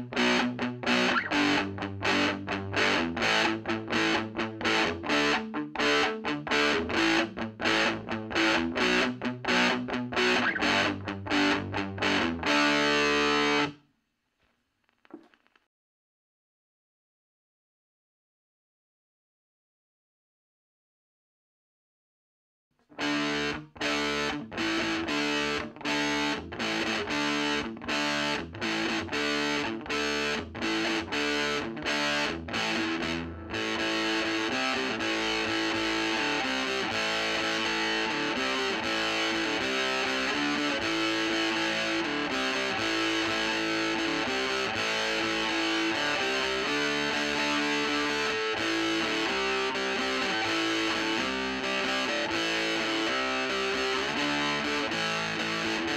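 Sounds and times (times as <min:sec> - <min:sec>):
distorted electric guitar: 0:00.0 - 0:13.8, 0:22.9 - 0:55.9.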